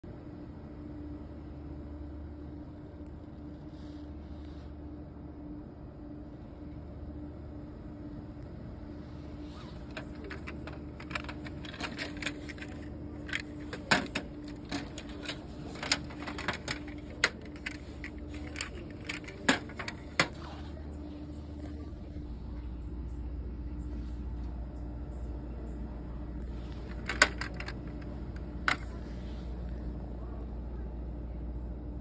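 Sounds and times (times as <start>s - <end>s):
steady hum: 0.0s - 32.0s
model cars clacking on plastic shelves: 9.8s - 20.5s, 26.8s - 29.0s.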